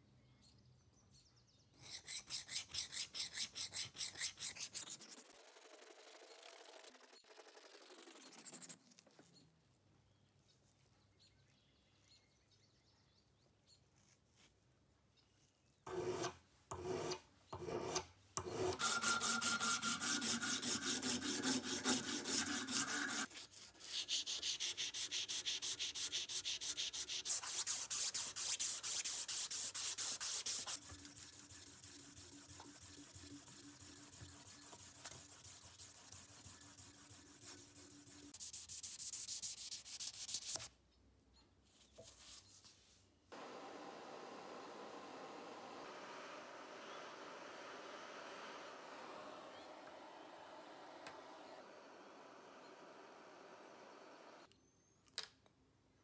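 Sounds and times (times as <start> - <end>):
hand file rasping on steel: 1.8 - 5.6, 15.9 - 40.6
abrasive cloth rubbing steel shaft: 17.8 - 40.4.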